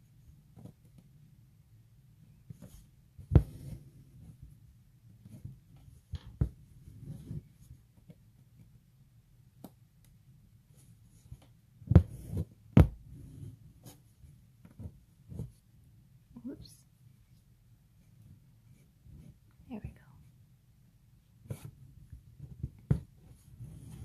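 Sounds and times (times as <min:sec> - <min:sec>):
needle and thread through fabric: 0:05.2 - 0:08.7, 0:10.7 - 0:15.7, 0:18.0 - 0:20.2.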